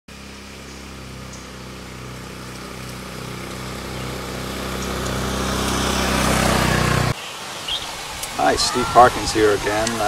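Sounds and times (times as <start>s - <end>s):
small motorcycle engine approaching: 0.1s - 7.9s.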